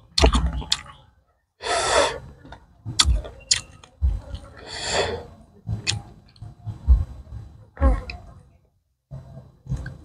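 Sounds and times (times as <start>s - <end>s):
loud breath: 1.6s - 2.4s, 4.6s - 5.4s.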